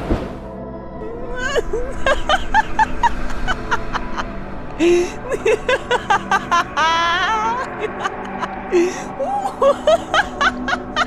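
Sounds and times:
horror music drone: 0.4s - 11.0s
high-pitched giggling: 4.8s - 11.0s.

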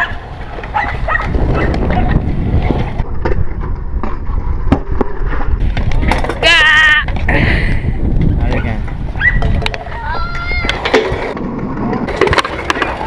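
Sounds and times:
scooter wheels rolling on concrete: 0.0s - 13.0s
scooter clacks and knocks: 9.4s - 13.0s.

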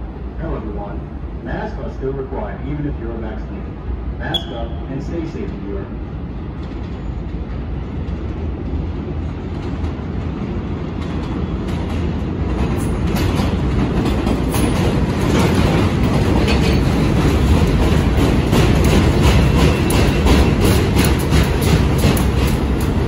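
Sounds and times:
train wheels rumbling on rail: 0.0s - 23.0s
wheel clicks over rail joints: 12.6s - 23.0s.

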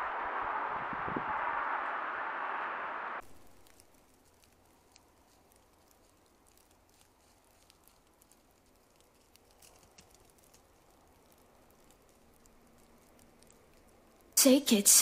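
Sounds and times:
faint light ticks and patter: 3.2s - 15.0s.

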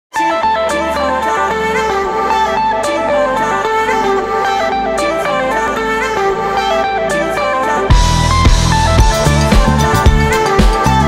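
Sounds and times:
bass-heavy beat: 7.9s - 11.0s.

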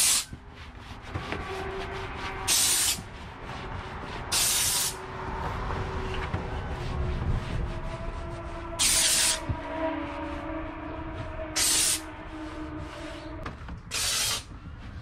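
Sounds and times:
steam hissing blasts: 0.0s - 0.3s, 2.5s - 3.0s, 4.3s - 5.0s, 8.8s - 9.4s, 11.6s - 12.1s, 13.9s - 14.5s.

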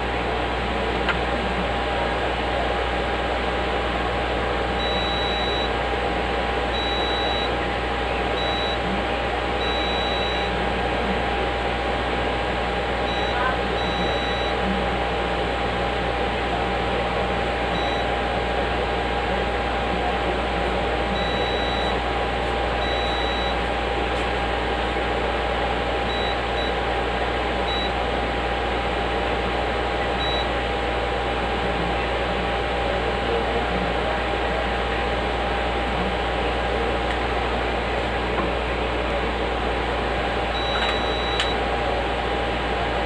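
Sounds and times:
fan-like hum with faint whine: 0.0s - 43.0s
multimeter continuity beeps: 4.8s - 5.8s, 6.7s - 7.6s, 8.3s - 8.9s, 9.6s - 10.6s, 13.0s - 14.6s, 17.7s - 18.2s, 21.1s - 22.0s, 22.8s - 23.6s, 26.1s - 26.8s, 27.7s - 28.0s, 30.2s - 30.5s, 40.5s - 41.6s.

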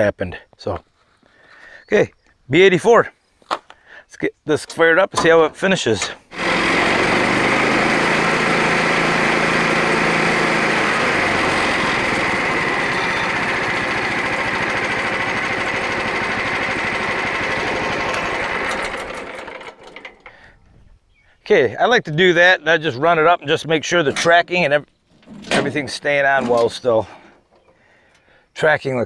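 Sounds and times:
small petrol engine running: 6.3s - 20.5s.

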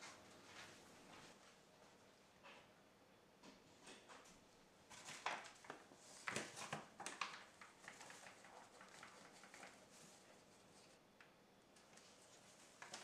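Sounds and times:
paper bag crinkling: 4.9s - 11.0s.

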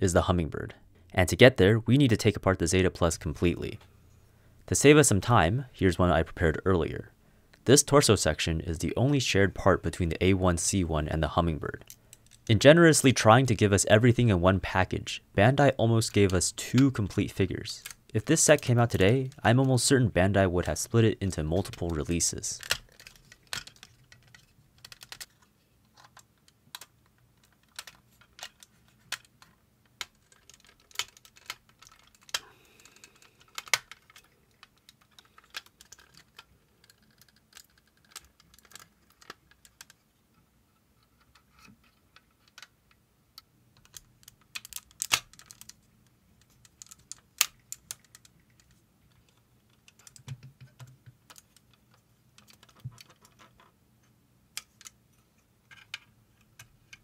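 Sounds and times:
plastic figure parts clicking: 16.0s - 19.8s, 20.6s - 40.1s, 41.0s - 57.0s.

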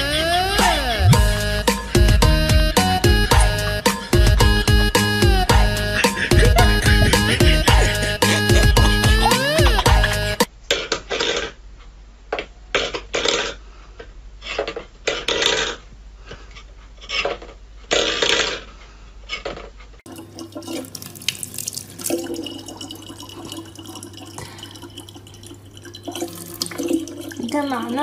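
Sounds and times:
water running from a tap: 20.1s - 28.0s.

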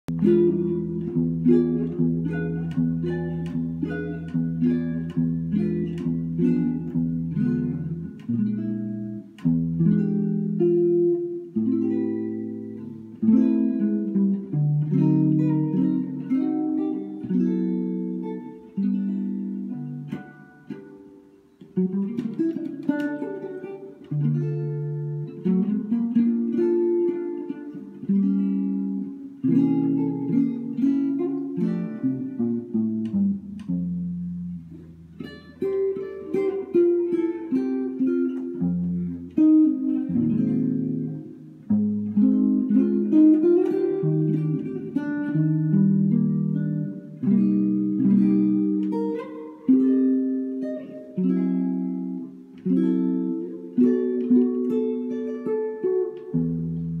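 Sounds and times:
hollow-body guitar chord melody: 0.1s - 57.0s.

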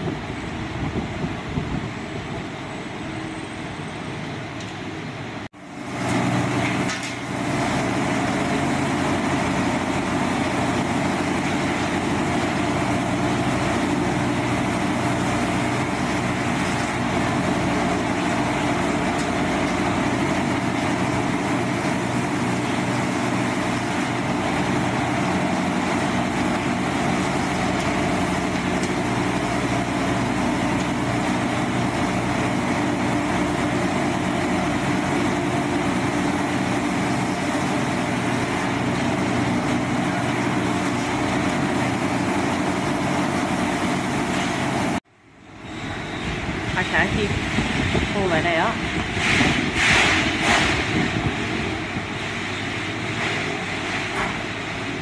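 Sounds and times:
factory noise: 0.0s - 55.0s
pump motor hum: 5.6s - 55.0s.

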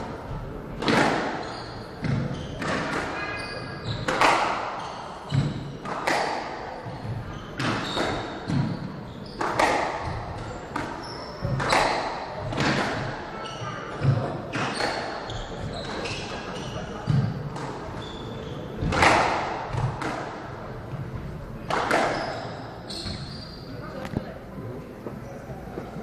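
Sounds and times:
short high squeaks: 1.4s - 4.1s, 22.1s - 23.8s
squash ball cracking off rackets: 4.1s - 4.7s, 5.3s - 6.6s, 9.4s - 13.0s, 18.8s - 20.4s.

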